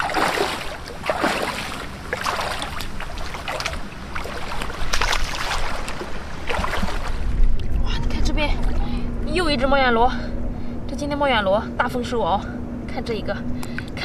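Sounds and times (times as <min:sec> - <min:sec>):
boots wading through water: 0:00.0 - 0:07.8.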